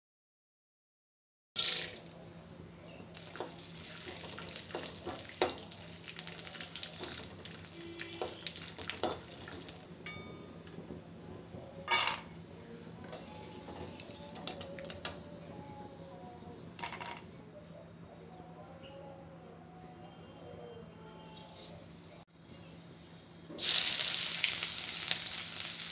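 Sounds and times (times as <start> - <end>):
peanuts sizzling in oil: 3.2 - 9.8, 23.6 - 25.9.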